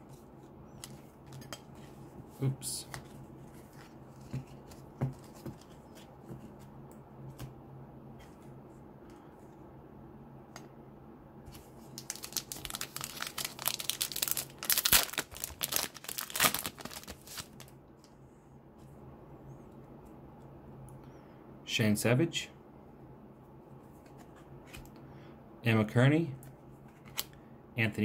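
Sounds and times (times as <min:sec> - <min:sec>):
foil wrapper crinkling and tearing: 0:12.0 - 0:17.7.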